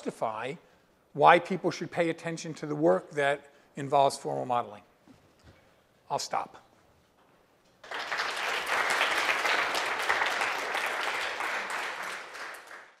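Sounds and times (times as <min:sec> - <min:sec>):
audience applauding: 0:07.8 - 0:13.0.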